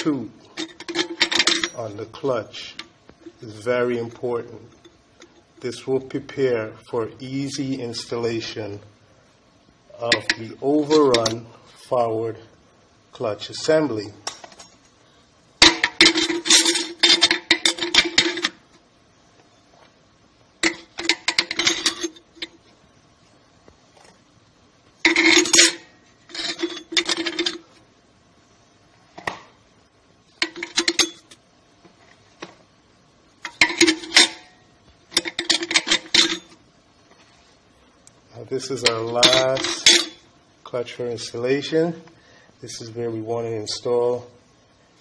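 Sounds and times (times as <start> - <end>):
metal clutch plates clinking: 0.6 - 1.8, 15.6 - 18.6, 20.6 - 22.6, 25.1 - 27.6, 30.4 - 31.4, 35.1 - 36.6, 38.8 - 40.2.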